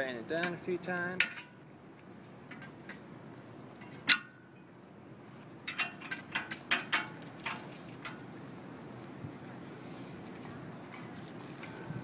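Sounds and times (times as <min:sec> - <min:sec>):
wrenches clinking on metal: 0:05.7 - 0:08.2.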